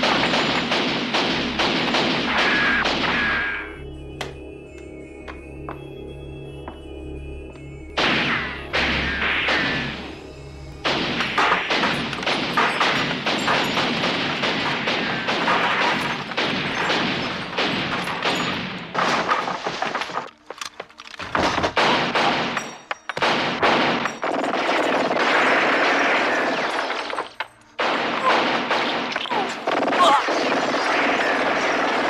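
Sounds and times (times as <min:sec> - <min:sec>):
rapid gunfire: 0:00.0 - 0:03.6, 0:10.8 - 0:20.3, 0:21.6 - 0:22.6, 0:23.2 - 0:32.0.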